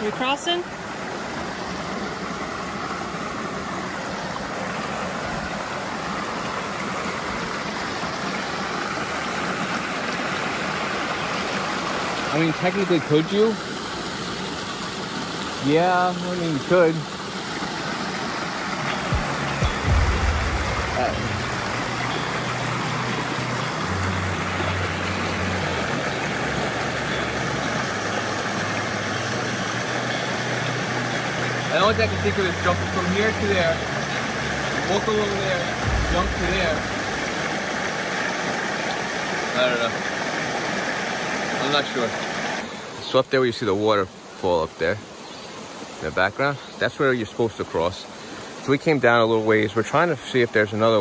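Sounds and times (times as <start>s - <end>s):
rushing stream: 0.0s - 51.0s.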